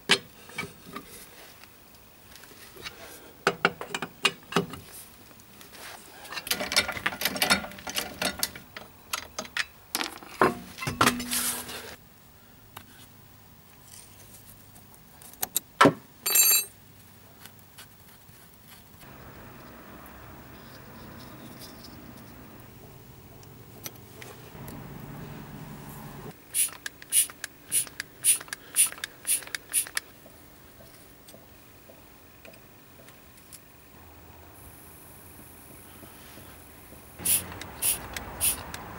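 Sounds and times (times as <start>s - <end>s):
wheel bolts clinking and rattling: 6.4s - 11.4s, 16.2s - 16.8s.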